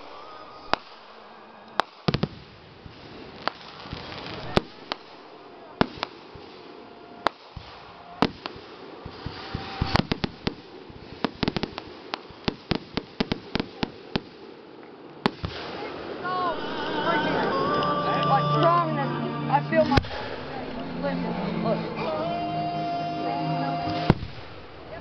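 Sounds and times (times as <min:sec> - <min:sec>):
firework shells bursting: 0:01.7 - 0:14.5.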